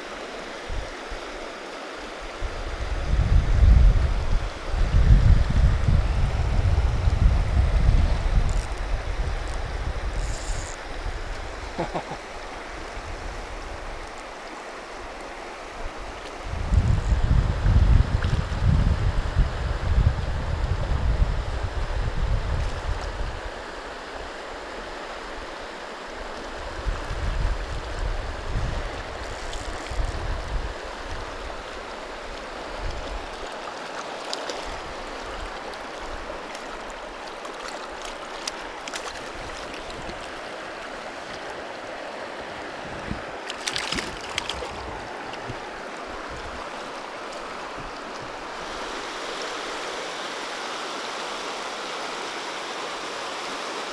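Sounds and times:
river rushing over rocks: 0.0 - 16.6, 21.2 - 53.9
wind buffeting microphone: 2.4 - 10.4, 16.4 - 23.5, 26.7 - 29.3, 42.8 - 46.7
water splashes: 26.1 - 50.6.

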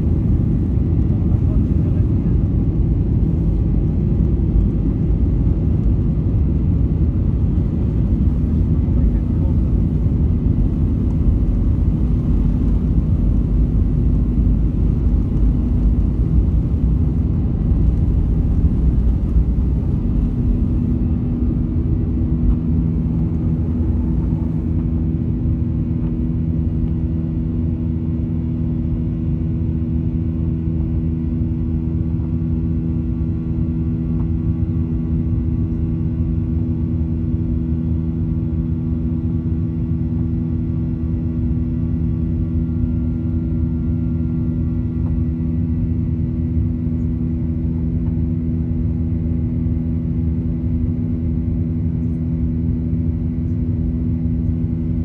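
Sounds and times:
heavy runway rumble: 0.0 - 55.0
jet engines at takeoff thrust: 0.0 - 55.0.

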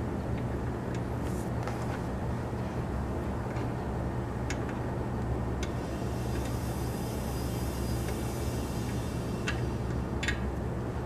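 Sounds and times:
compressor motor humming: 5.0 - 11.0.

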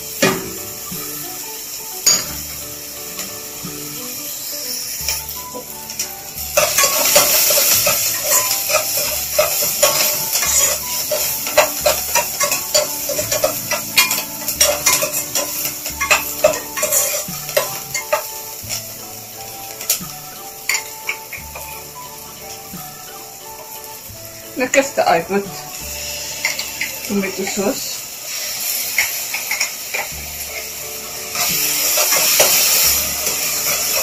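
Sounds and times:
faint background music: 0.0 - 34.0
onion sizzling in oil: 0.0 - 34.0
metal spoon scraping a pan: 5.9 - 18.8, 25.8 - 34.0.

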